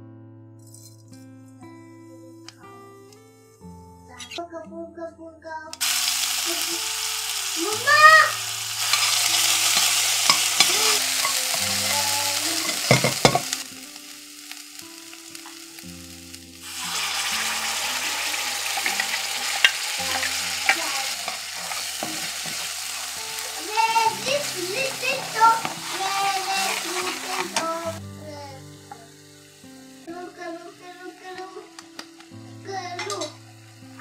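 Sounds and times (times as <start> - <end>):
puree sizzling in a pan: 5.8 - 34.0
metal spatula scraping a pan: 16.8 - 27.9.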